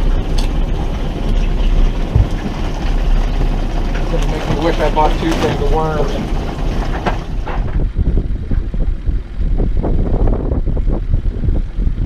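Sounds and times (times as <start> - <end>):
boat motor rumble: 0.0 - 12.0
wind buffeting microphone: 0.0 - 12.0.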